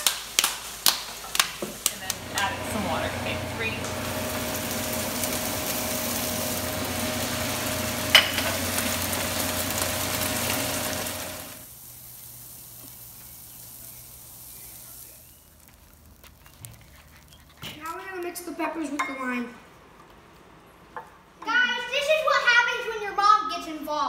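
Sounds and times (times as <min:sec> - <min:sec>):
vegetables sizzling in a frying pan: 0:00.0 - 0:16.5
wooden spoon stirring: 0:15.5 - 0:18.4.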